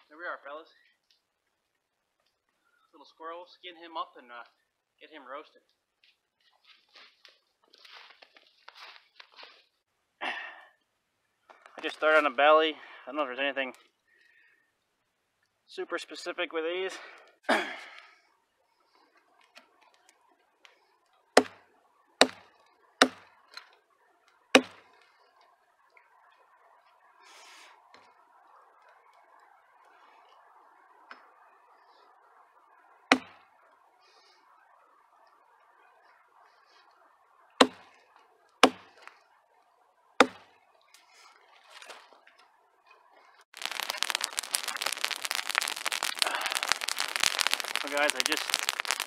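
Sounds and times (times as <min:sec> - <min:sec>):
hatchet chopping into a log: 0:22.2 - 0:22.4, 0:23.0 - 0:23.2, 0:24.6 - 0:24.8, 0:37.6 - 0:37.8, 0:38.6 - 0:38.9, 0:40.2 - 0:40.5.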